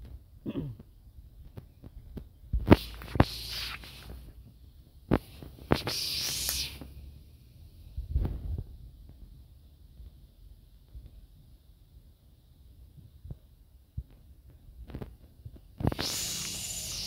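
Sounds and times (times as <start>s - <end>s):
high hissing: 2.7s - 4.4s, 5.1s - 7.3s, 15.8s - 17.0s.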